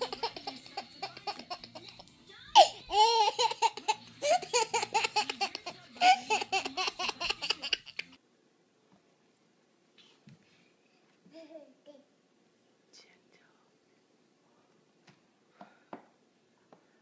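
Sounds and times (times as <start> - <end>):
baby laughing: 0.0 - 8.2.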